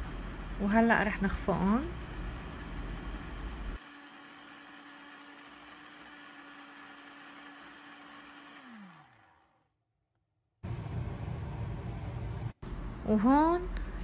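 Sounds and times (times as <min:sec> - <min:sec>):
blender crushing ice: 0:03.8 - 0:09.8.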